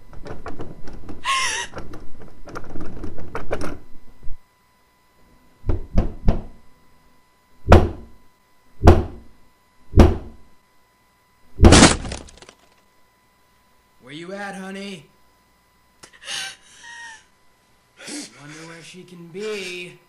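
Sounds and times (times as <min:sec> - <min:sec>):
knocks on door: 0:05.7 - 0:06.5, 0:07.6 - 0:08.1, 0:08.8 - 0:09.2, 0:10.0 - 0:10.4
door crashing open: 0:11.6 - 0:12.5.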